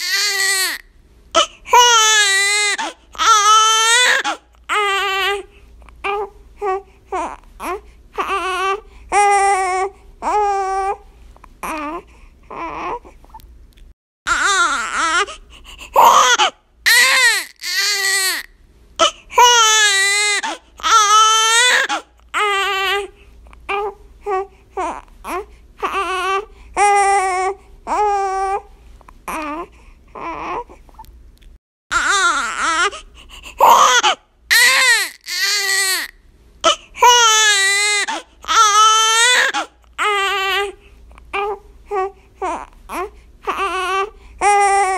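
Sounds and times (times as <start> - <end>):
baby crying: 0.0 - 0.8, 1.4 - 11.0, 11.6 - 13.1, 14.3 - 23.1, 23.7 - 28.7, 31.9 - 44.9
infant gasping: 15.1 - 16.6, 32.7 - 34.2.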